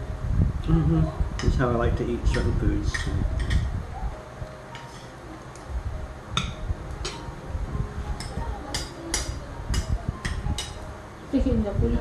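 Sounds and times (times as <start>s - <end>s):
cutlery clinking on plates: 2.3s - 3.7s, 4.8s - 5.1s, 6.4s - 7.3s, 8.2s - 10.8s
dishes thumping: 2.3s - 3.7s, 6.4s - 7.3s.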